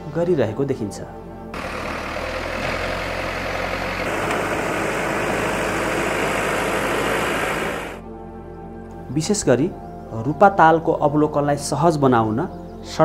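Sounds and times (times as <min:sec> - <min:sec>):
diesel engine running: 0:01.6 - 0:08.0
low hum: 0:01.6 - 0:08.0.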